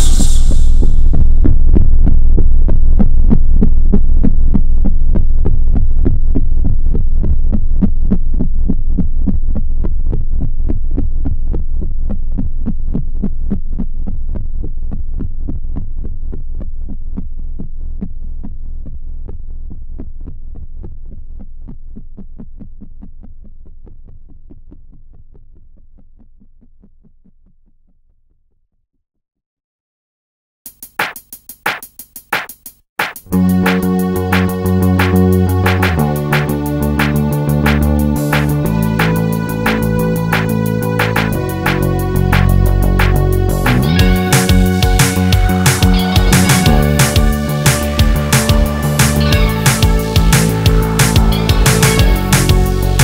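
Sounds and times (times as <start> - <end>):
low pulsing drone: 33.3 - 53.0.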